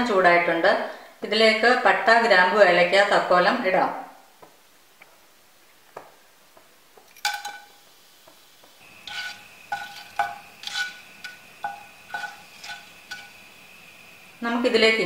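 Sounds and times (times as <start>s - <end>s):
faint oil sizzle: 6.3s - 15.0s
spices clinking into a pan: 7.2s - 7.8s, 8.8s - 13.7s
wooden spatula knocking a pan: 7.3s - 13.4s.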